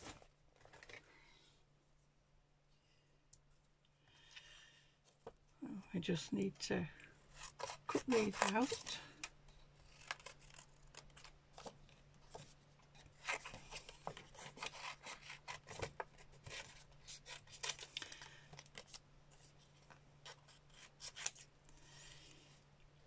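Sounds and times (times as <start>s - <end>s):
card rustling: 7.4s - 21.5s.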